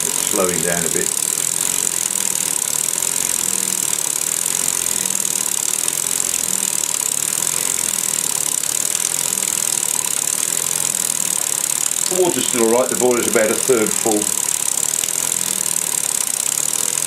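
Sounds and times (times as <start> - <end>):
steady high hiss: 0.0 - 2.1, 11.4 - 15.4
model steam engine exhaust beat: 0.0 - 17.0.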